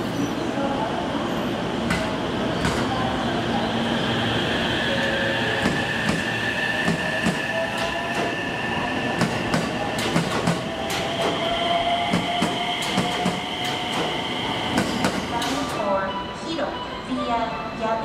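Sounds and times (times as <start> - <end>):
train wheels clicking over rail joints: 9.2 - 11.5, 12.1 - 15.8.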